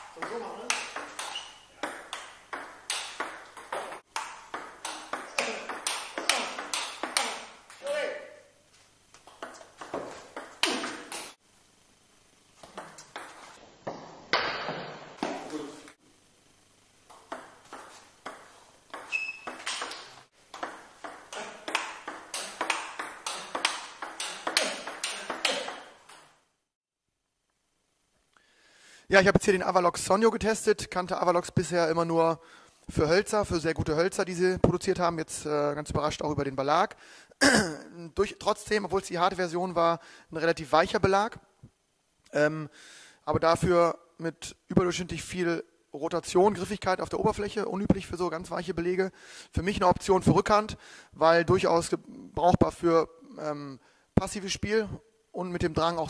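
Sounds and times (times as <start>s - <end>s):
table tennis ball hits: 0.0s - 7.8s, 9.2s - 11.4s, 12.6s - 15.6s, 17.1s - 26.4s.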